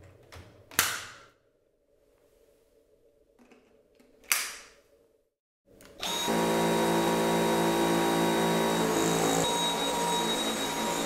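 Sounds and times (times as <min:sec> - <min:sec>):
vacuum motor whining hum: 0:06.0 - 0:11.0.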